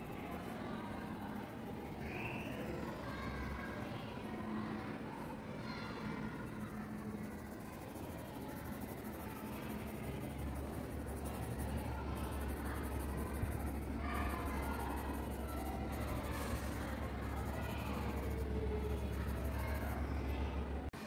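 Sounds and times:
steady low hum: 0.0 - 20.9
pencil shading on paper: 6.4 - 20.6.

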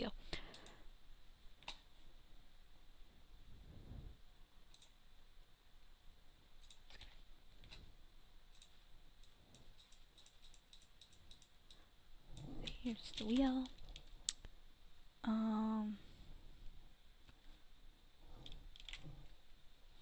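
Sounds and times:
computer mouse clicks: 0.4 - 0.8, 1.6 - 1.9, 4.6 - 5.0, 6.6 - 7.9, 8.5 - 14.5, 18.3 - 19.3.

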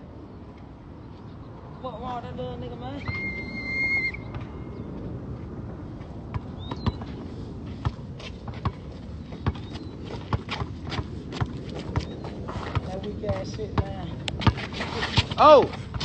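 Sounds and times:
footsteps on asphalt: 5.4 - 16.0
basketball bouncing: 12.7 - 15.3.

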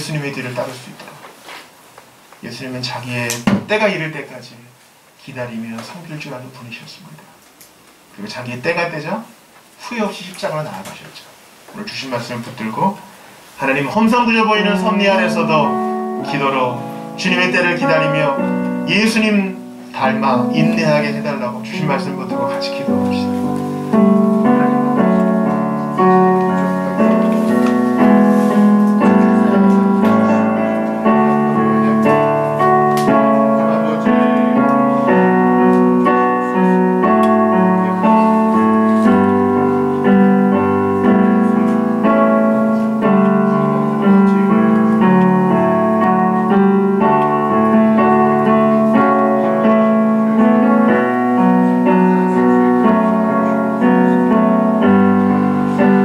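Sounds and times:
electric keyboard piano chords: 11.7 - 56.0.

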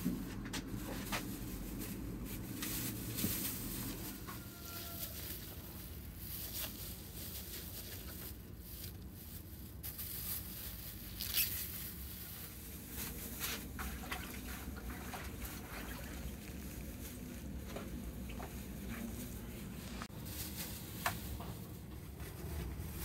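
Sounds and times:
wet squelching and dripping: 13.6 - 16.6.

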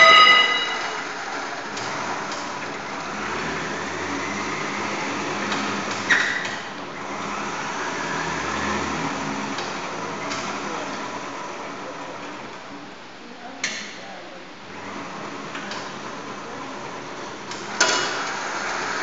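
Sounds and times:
metallic clank and ring: 0.0 - 1.2
drilling rig humming and rattling: 0.0 - 11.9.

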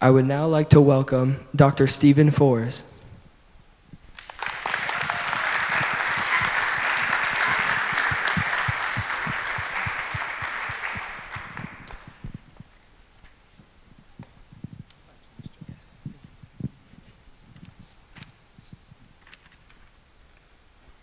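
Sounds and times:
audience applauding: 4.1 - 12.4.

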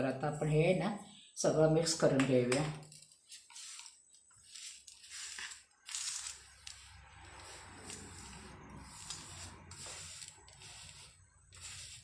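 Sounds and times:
fingers scraping mixture on metal plate: 3.6 - 12.0.

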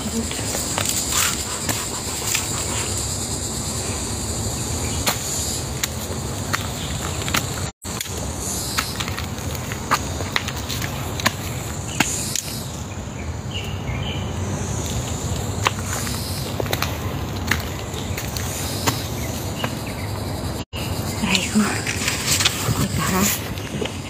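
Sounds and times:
footsteps on rocky trail: 5.1 - 12.7, 14.8 - 20.2.

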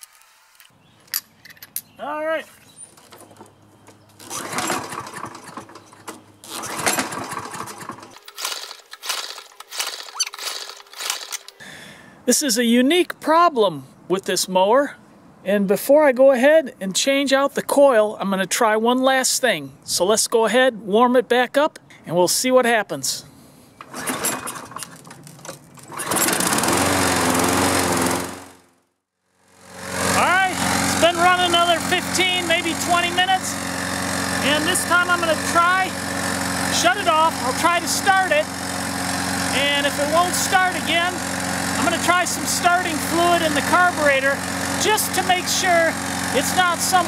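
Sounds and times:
mower engine cranking: 2.7 - 11.6, 23.8 - 28.6, 29.5 - 47.0
recoil starter rope pulling: 2.9 - 11.6, 23.8 - 28.6, 29.6 - 47.0.

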